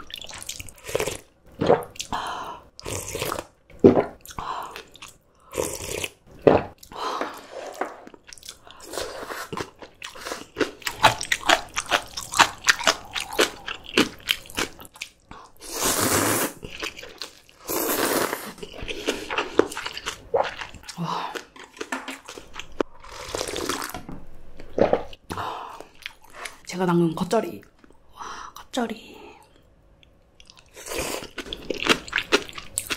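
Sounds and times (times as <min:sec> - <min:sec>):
wet chewing with clicks: 0:09.5 - 0:15.3.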